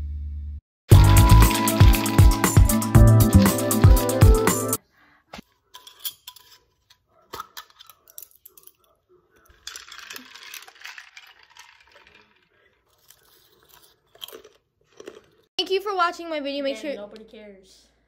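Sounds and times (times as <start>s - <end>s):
person slurping through a straw: 0.9s - 4.6s
background music: 0.9s - 4.8s
metal straw and ice clinking: 0.9s - 4.8s, 5.7s - 15.4s.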